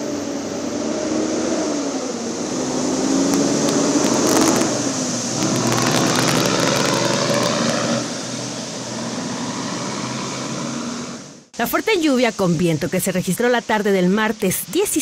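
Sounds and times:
truck engine running: 0:01.8 - 0:11.5
tyres splashing through water: 0:02.8 - 0:09.1.

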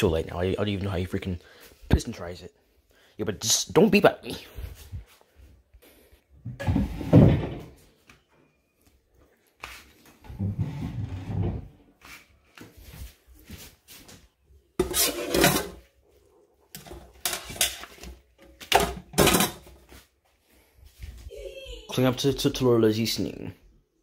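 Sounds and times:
household knocks and clatter: 0:06.5 - 0:07.8, 0:14.8 - 0:15.8, 0:16.8 - 0:19.9.

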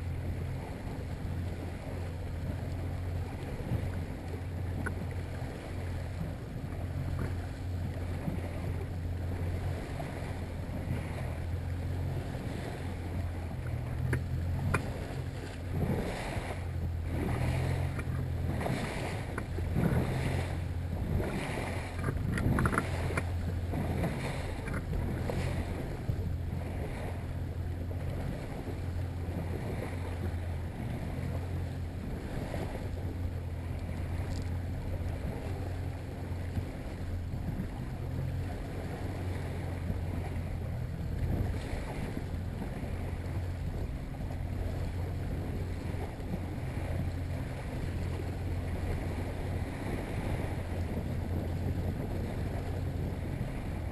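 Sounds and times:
outboard motor drone: 0:00.0 - 0:53.9
water slapping against hull: 0:00.0 - 0:53.9
wind noise on microphone: 0:12.1 - 0:53.9.

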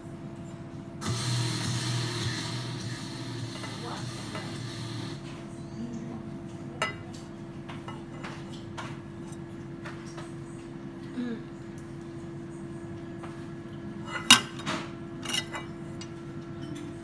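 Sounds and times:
metal ashtray clicking: 0:14.1 - 0:16.2.

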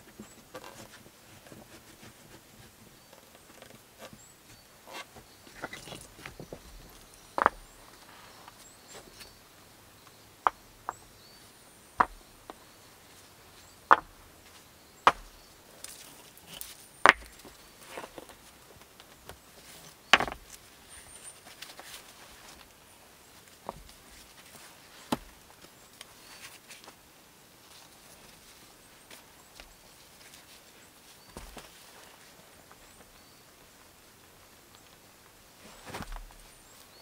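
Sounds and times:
sharp hard knocks on stone: 0:12.0 - 0:12.2, 0:13.9 - 0:14.1, 0:15.0 - 0:15.3, 0:17.0 - 0:17.4, 0:20.1 - 0:20.4.

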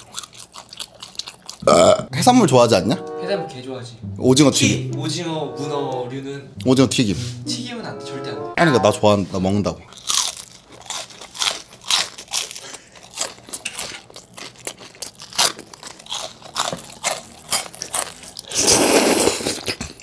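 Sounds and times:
crunching and chewing fried food: 0:00.0 - 0:02.1, 0:09.7 - 0:20.0.

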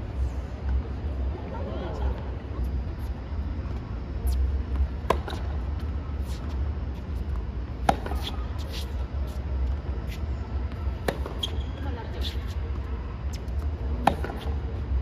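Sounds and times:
racket hitting tennis ball: 0:04.8 - 0:05.6, 0:07.8 - 0:09.0, 0:11.0 - 0:12.4, 0:13.4 - 0:14.6.

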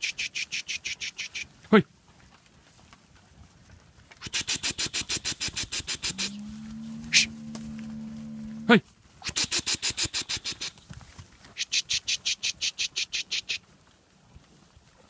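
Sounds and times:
rapid high chirping ticks: 0:00.0 - 0:01.5, 0:04.2 - 0:06.4, 0:09.2 - 0:10.8, 0:11.6 - 0:13.6
steer mooing: 0:06.0 - 0:08.8.

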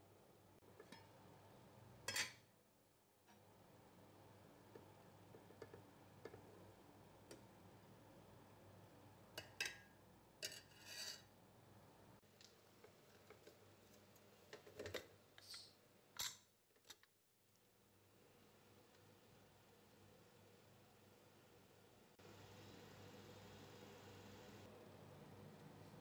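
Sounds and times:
ladle clinking and scraping a pot: 0:10.4 - 0:11.3.

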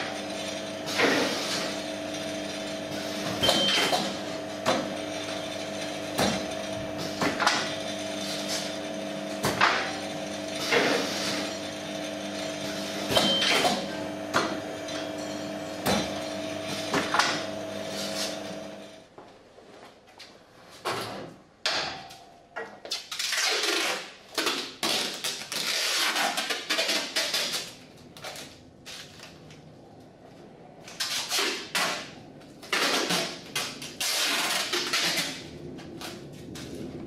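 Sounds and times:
machine motor hum: 0:00.0 - 0:19.0.

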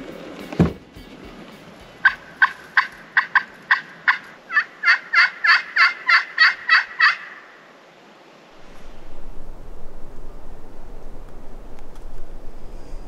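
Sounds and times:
turkey call yelps: 0:02.0 - 0:07.6.

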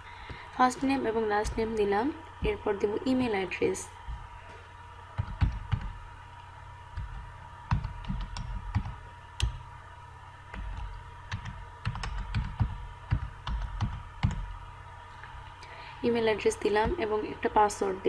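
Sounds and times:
faint steady hum: 0:00.0 - 0:18.0
computer keyboard typing: 0:00.3 - 0:03.3, 0:05.2 - 0:06.1, 0:06.9 - 0:09.7, 0:10.5 - 0:14.6.

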